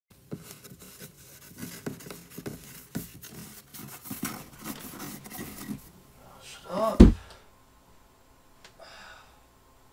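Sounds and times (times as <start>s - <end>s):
scratching and scraping inside wall: 0.3s - 5.9s.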